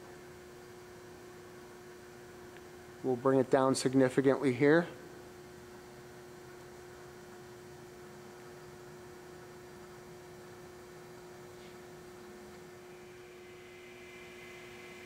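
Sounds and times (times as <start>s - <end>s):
drill arm motor hum: 12.8s - 15.0s.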